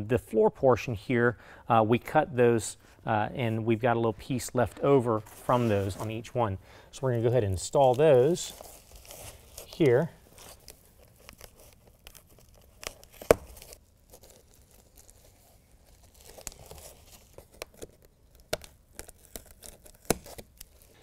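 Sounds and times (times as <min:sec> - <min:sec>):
velcro strip being peeled: 0:07.9 - 0:21.0.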